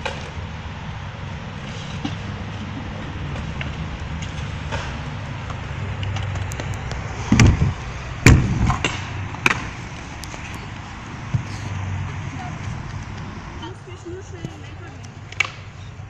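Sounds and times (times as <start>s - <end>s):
kick scooter rolling on concrete: 1.2s - 16.0s
loud knocks: 7.3s - 9.6s.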